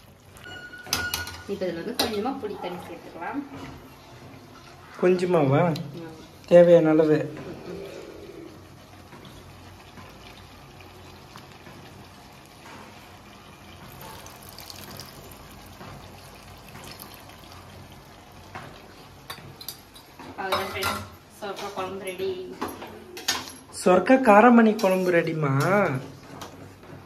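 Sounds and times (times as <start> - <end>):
liquid pouring into a pan: 9.2 - 19.0.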